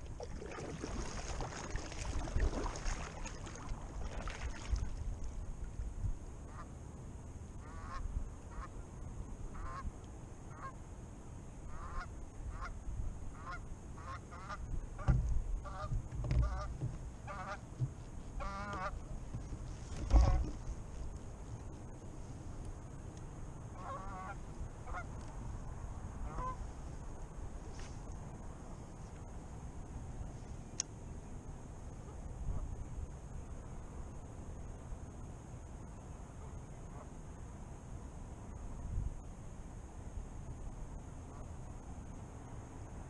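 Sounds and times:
kayak paddle strokes splashing: 0:00.0 - 0:05.9, 0:14.4 - 0:23.2
geese honking: 0:13.4 - 0:17.6, 0:18.4 - 0:19.0, 0:26.3 - 0:26.6.

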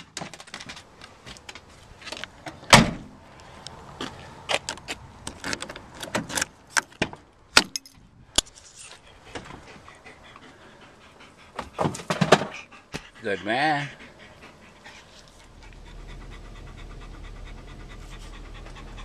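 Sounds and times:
vehicle doors and interior clunks: 0:02.4 - 0:03.2.

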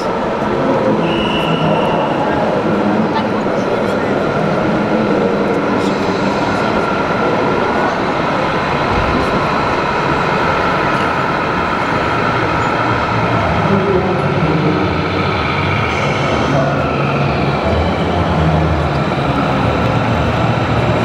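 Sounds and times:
crowded hall din: 0:00.0 - 0:21.0
diesel truck engine rumble: 0:00.0 - 0:21.0.

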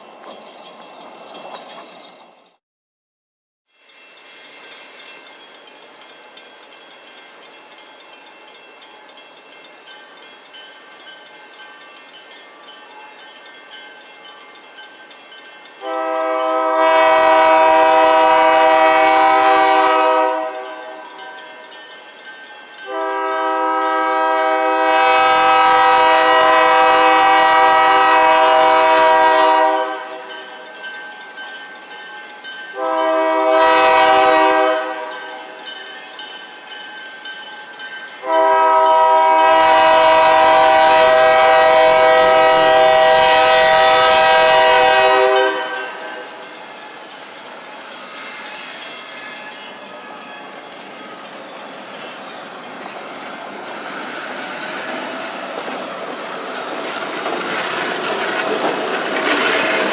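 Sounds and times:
locomotive air horn blasts: 0:15.8 - 0:21.0, 0:22.9 - 0:30.3, 0:32.8 - 0:35.3, 0:38.2 - 0:46.3.

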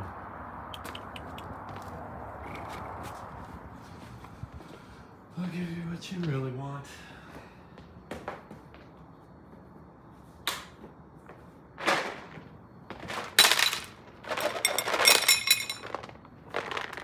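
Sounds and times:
kibble clattering onto a plate: 0:13.3 - 0:17.0
kibble rattling in container: 0:13.4 - 0:17.0.

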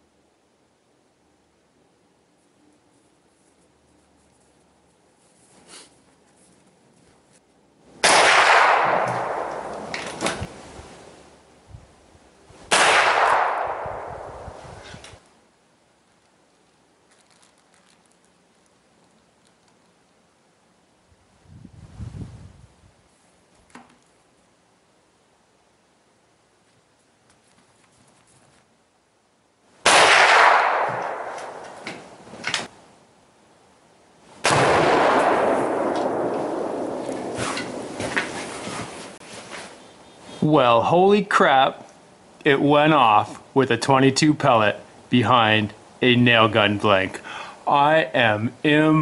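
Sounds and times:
explosive target detonating: 0:08.0 - 0:10.0, 0:12.7 - 0:14.5, 0:34.4 - 0:38.0
rifle shot echoing: 0:08.0 - 0:10.3, 0:12.7 - 0:14.5, 0:29.8 - 0:31.8, 0:34.4 - 0:38.0
short sharp crack: 0:08.0 - 0:10.5.

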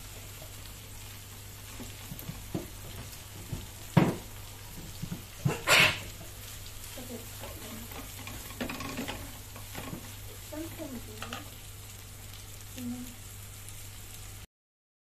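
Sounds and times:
meat and onions sizzling: 0:00.0 - 0:14.5
wooden spatula scraping a pan: 0:00.2 - 0:11.6.

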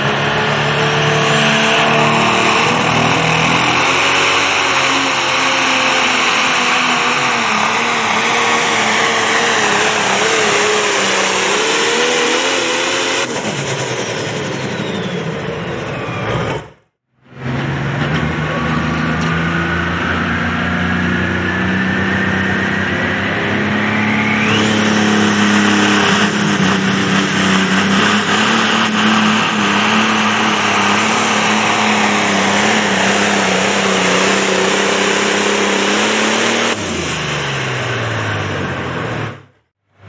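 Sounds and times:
turbo whine: 0:00.0 - 0:39.5
diesel tractor engine at full throttle: 0:00.0 - 0:40.0.

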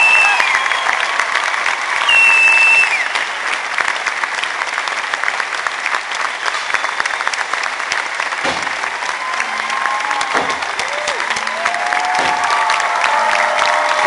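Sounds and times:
high whistle: 0:00.0 - 0:01.1, 0:02.0 - 0:03.3
audience applauding: 0:00.0 - 0:14.0.

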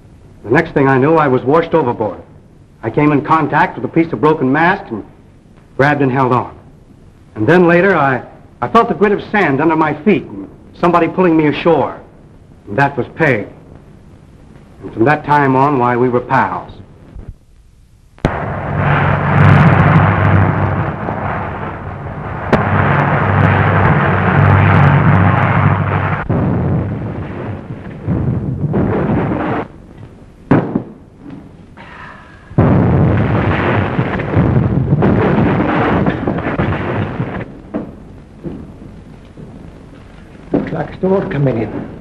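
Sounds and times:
thunder crashes and rolls: 0:18.3 - 0:29.7, 0:32.6 - 0:39.7, 0:40.5 - 0:42.0
rain: 0:37.4 - 0:42.0.

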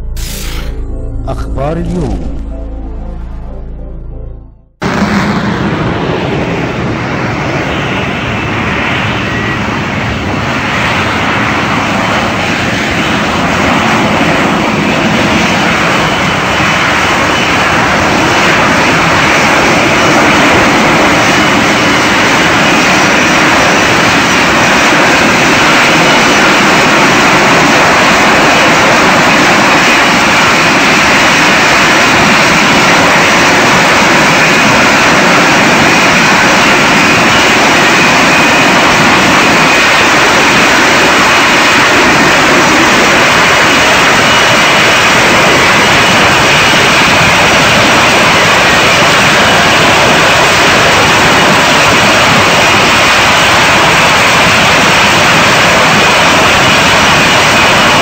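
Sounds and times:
jet engine rush: 0:00.0 - 0:01.0, 0:04.8 - 0:58.0.

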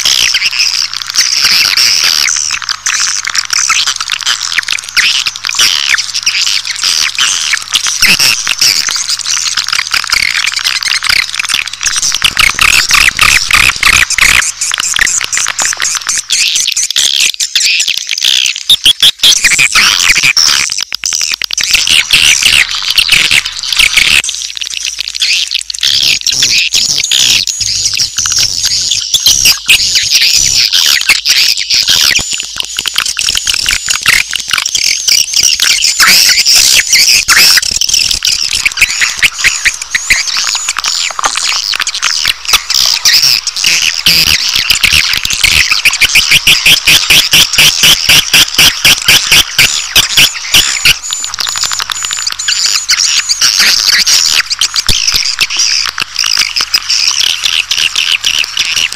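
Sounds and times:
rapid clicks: 0:00.0 - 0:17.5, 0:31.0 - 0:58.9
chorus of high bird chirps: 0:00.0 - 0:58.9.

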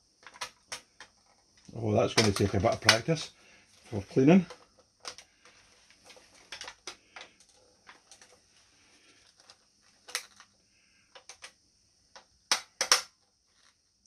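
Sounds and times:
clicks handling toy rifle: 0:02.1 - 0:03.1, 0:12.2 - 0:13.1.

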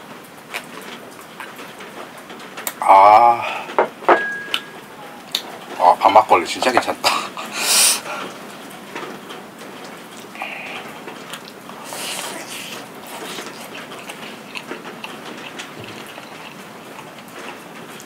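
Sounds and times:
steady rain hiss: 0:00.0 - 0:18.0
soft chewing: 0:00.5 - 0:02.0, 0:10.1 - 0:18.0.

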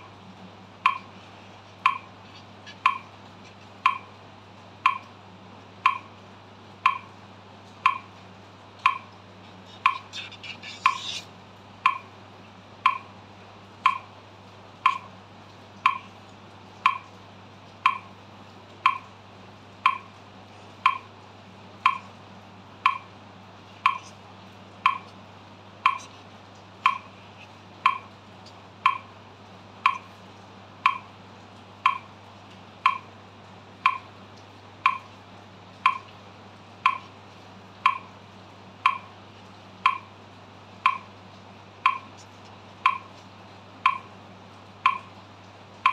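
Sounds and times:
metronome clicking: 0:00.8 - 0:01.1, 0:01.8 - 0:02.1, 0:02.7 - 0:03.1, 0:03.8 - 0:04.1, 0:04.8 - 0:05.1, 0:05.8 - 0:06.1, 0:06.8 - 0:07.1, 0:07.8 - 0:08.1, 0:08.8 - 0:09.1, 0:11.8 - 0:12.1, 0:12.8 - 0:13.1, 0:13.8 - 0:14.1, 0:14.8 - 0:15.1, 0:15.8 - 0:16.1, 0:16.8 - 0:17.1, 0:17.8 - 0:18.1, 0:18.8 - 0:19.1, 0:19.8 - 0:20.1, 0:20.8 - 0:21.1, 0:21.8 - 0:22.1, 0:22.8 - 0:23.1, 0:23.8 - 0:24.1, 0:24.8 - 0:25.1, 0:25.8 - 0:26.2, 0:26.8 - 0:27.1, 0:27.8 - 0:28.1, 0:28.8 - 0:29.1, 0:29.8 - 0:30.1, 0:30.8 - 0:31.1, 0:31.8 - 0:32.1, 0:32.8 - 0:33.1, 0:33.8 - 0:34.1, 0:34.8 - 0:35.1, 0:35.8 - 0:36.2, 0:36.8 - 0:37.1, 0:37.8 - 0:38.1, 0:38.8 - 0:39.1, 0:39.8 - 0:40.1, 0:40.8 - 0:41.1, 0:41.8 - 0:42.2, 0:42.8 - 0:43.1, 0:43.8 - 0:44.1, 0:44.8 - 0:45.1.

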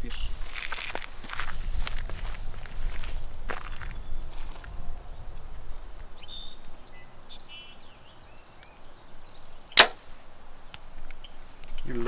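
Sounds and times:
bow string crack: 0:09.8 - 0:10.1.

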